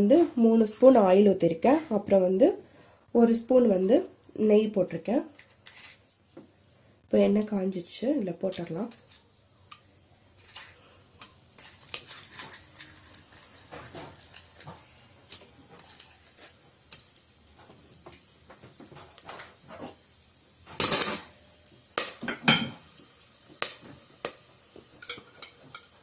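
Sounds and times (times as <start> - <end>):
spices frying in hot oil: 7.2 - 26.0
utensils and dishes clattering: 10.4 - 16.6, 24.8 - 26.0.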